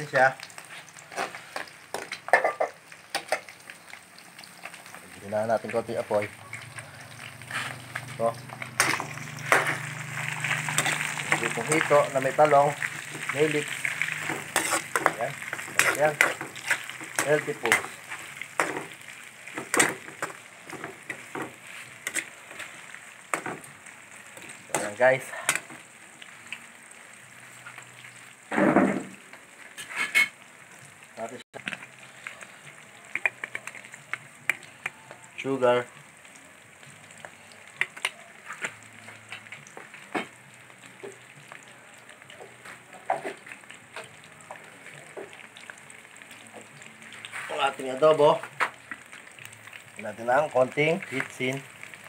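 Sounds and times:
low sizzle: 0.0 - 52.0
metal spoon scraping a wok: 8.8 - 11.9, 12.8 - 18.8, 21.6 - 22.7, 29.8 - 30.4.

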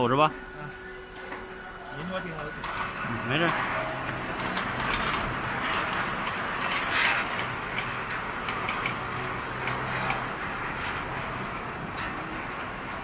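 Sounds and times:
machine motor hum: 0.0 - 13.0
mechanical ticks and clicks: 4.4 - 10.3.

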